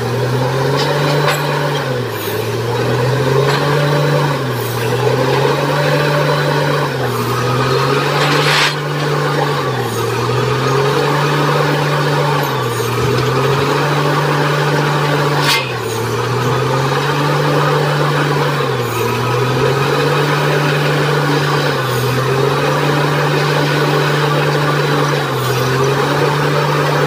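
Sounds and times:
drilling rig droning: 0:00.0 - 0:27.0
sharp noise: 0:07.6 - 0:09.4.

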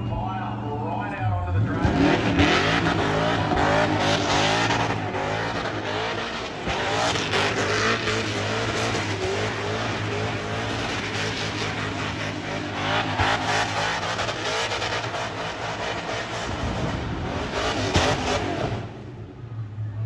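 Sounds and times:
car engine revving hard: 0:01.5 - 0:19.3.

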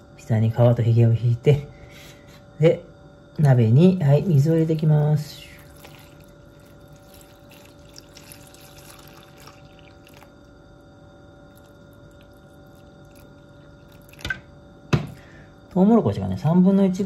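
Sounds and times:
faint steady hum: 0:00.0 - 0:17.0
water pouring into a metal pot: 0:05.6 - 0:10.5, 0:11.5 - 0:14.4.

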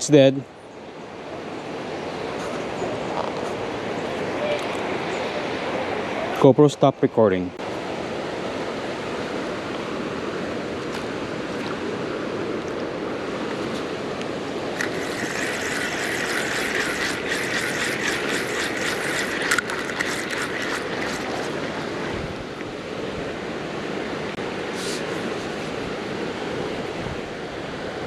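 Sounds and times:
river running over rocks: 0:07.7 - 0:28.0
fishing reel whirring and clicking: 0:14.8 - 0:22.0.

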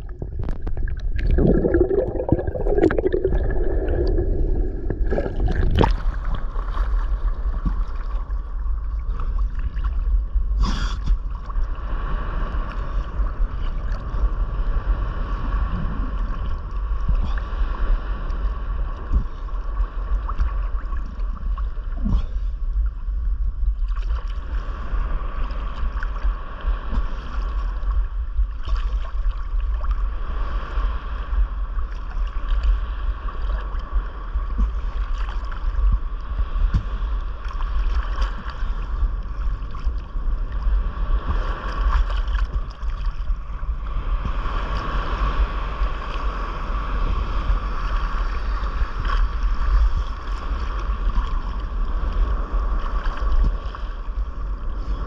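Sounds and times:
water sloshing and lapping: 0:00.0 - 0:11.8, 0:18.2 - 0:23.0, 0:23.6 - 0:30.2, 0:31.8 - 0:45.0, 0:47.8 - 0:55.0
wind rumble on microphone: 0:00.0 - 0:55.0.

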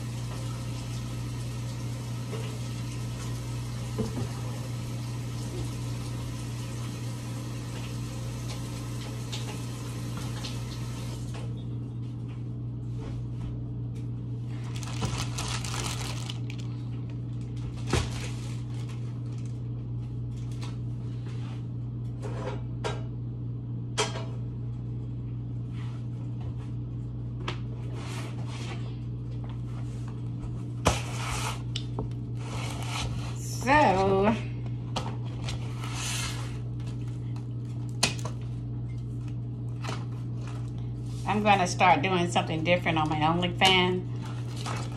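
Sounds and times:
kitchen appliance humming: 0:13.9 - 0:19.0.

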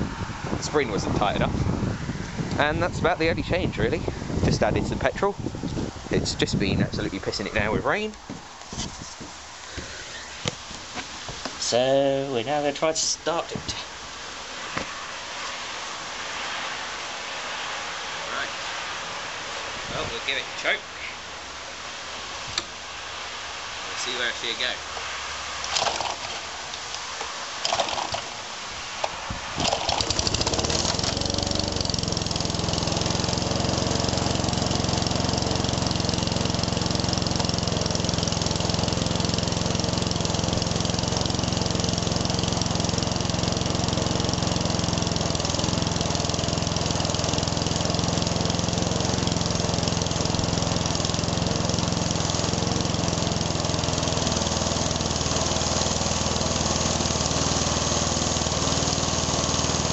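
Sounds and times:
lawnmower engine running: 0:00.0 - 0:13.9, 0:23.7 - 0:59.9
recoil starter pulls: 0:25.6 - 0:27.0, 0:27.6 - 0:28.4, 0:29.0 - 0:59.9.

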